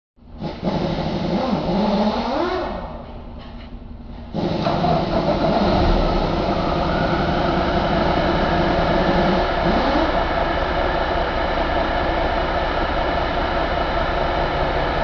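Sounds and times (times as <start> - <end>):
diesel engine running steadily: 0.2 - 15.0.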